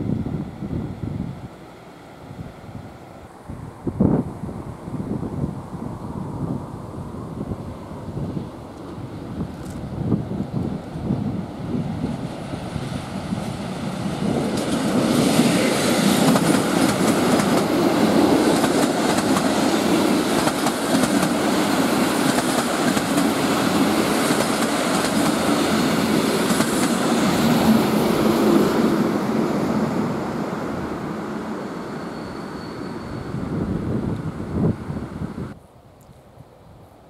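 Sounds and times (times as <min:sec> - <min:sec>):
diesel locomotive engine: 0:00.0 - 0:35.6
train wheels on rails: 0:07.8 - 0:34.4.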